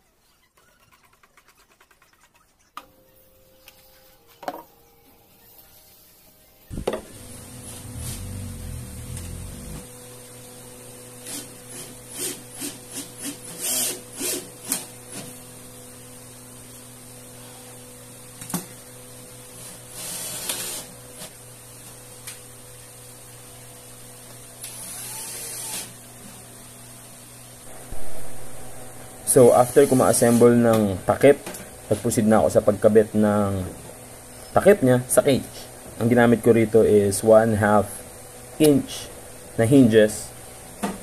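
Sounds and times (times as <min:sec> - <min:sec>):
low hum: 0:06.6 - 0:09.9, 0:27.6 - 0:32.0.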